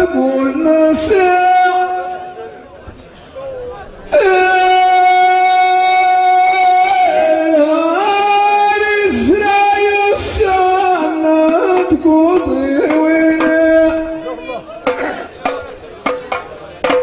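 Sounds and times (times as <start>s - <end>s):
man singing through loudspeakers: 0.0s - 17.0s.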